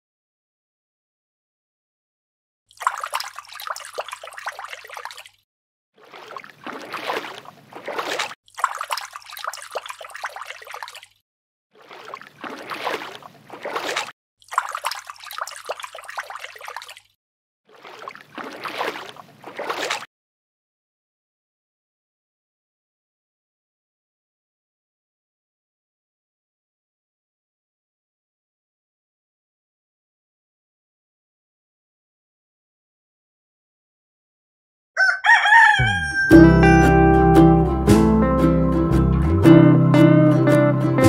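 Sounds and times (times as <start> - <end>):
water pouring onto wet sand: 2.7 - 5.4, 6.0 - 11.2, 11.8 - 17.1.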